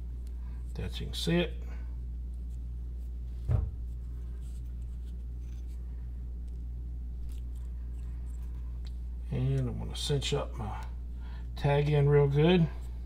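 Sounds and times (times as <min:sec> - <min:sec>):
steady low hum: 0:00.0 - 0:13.0
short thump: 0:03.4 - 0:03.9.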